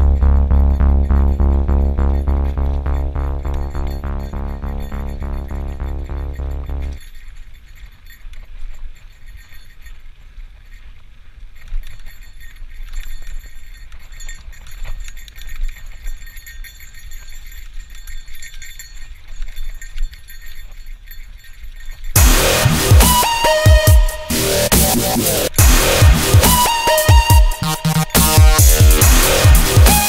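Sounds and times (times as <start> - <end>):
bicycle rattling and clicking: 0.0 - 22.2.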